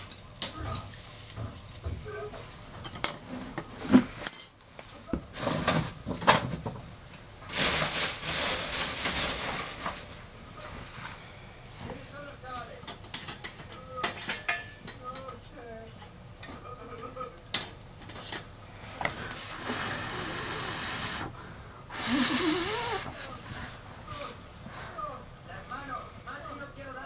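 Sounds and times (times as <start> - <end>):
stove hissing: 17.6 - 26.1.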